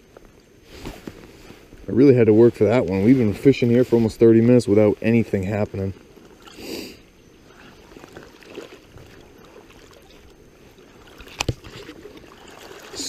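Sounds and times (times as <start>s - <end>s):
river water lapping and gurgling: 0.0s - 13.0s
short rustle: 0.6s - 6.4s.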